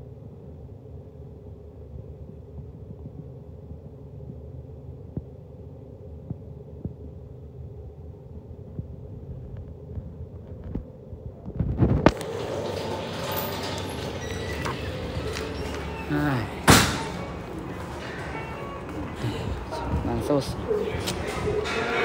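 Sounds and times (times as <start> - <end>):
muffled low microphone rumble: 0.0 - 12.2.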